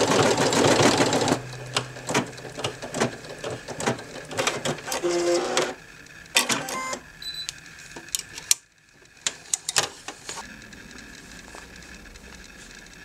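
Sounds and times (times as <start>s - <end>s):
embroidery machine stitching: 0.0s - 7.0s.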